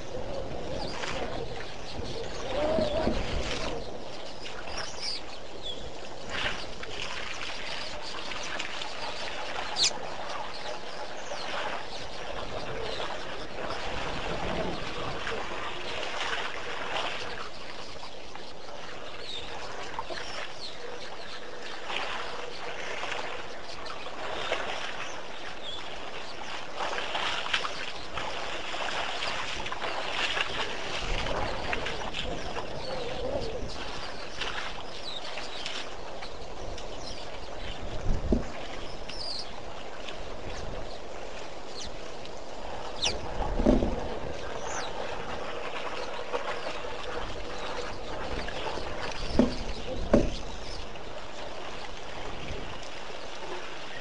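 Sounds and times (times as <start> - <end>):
water sloshing and splashing: 0.0 - 54.0
bird call: 8.8 - 10.0.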